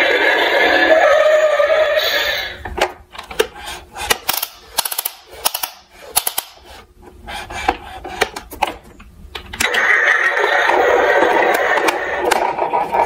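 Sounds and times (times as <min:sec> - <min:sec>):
toy ladder clicking: 0:03.2 - 0:06.6
plastic toy clicks and clatters: 0:04.2 - 0:06.6.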